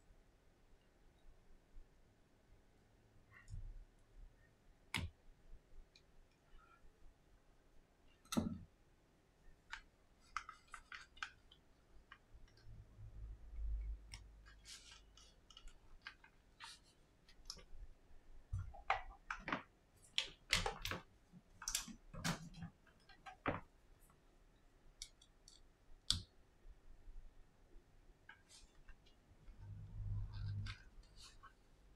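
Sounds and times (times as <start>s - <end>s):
soft handling noise: 14.1s - 17.9s.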